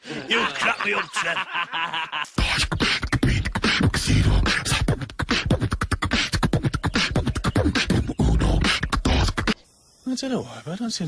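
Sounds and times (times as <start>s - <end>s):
person beatboxing: 2.4s - 9.6s.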